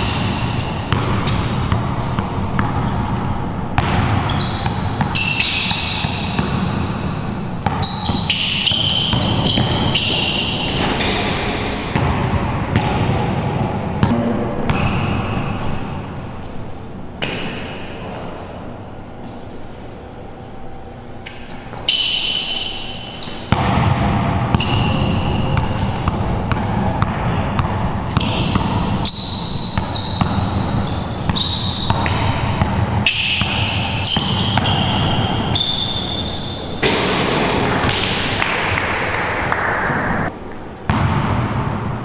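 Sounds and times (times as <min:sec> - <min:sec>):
sneaker squeaks: 0:00.0 - 0:12.3, 0:14.7 - 0:19.8, 0:20.5 - 0:23.6, 0:24.5 - 0:26.3, 0:27.5 - 0:37.0
basketball dribbling: 0:00.0 - 0:13.2, 0:23.2 - 0:37.0.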